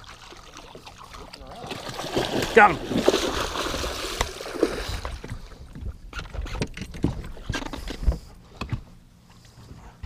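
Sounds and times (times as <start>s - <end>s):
fish splashing: 0.0s - 5.4s
knocks and thuds in boat: 1.7s - 8.9s.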